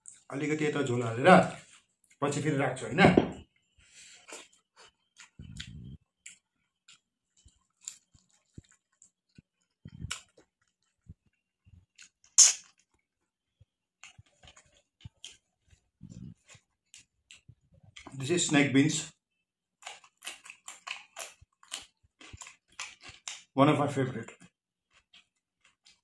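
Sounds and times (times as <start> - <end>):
person chewing: 3.5 - 18.2, 19.8 - 23.6, 24.3 - 26.0
mouth clicks: 12.3 - 12.7.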